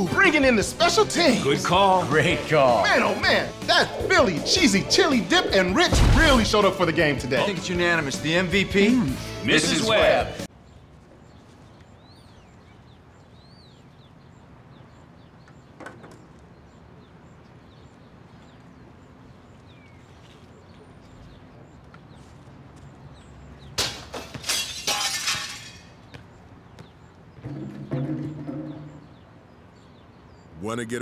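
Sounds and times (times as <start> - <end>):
birds chirping: 0.0 - 31.0
glass window breaking: 23.8 - 25.9.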